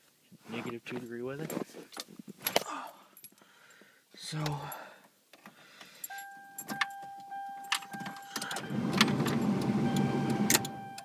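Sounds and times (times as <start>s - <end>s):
car keys jangling: 6.0s - 9.7s
high warning tone: 6.1s - 11.0s.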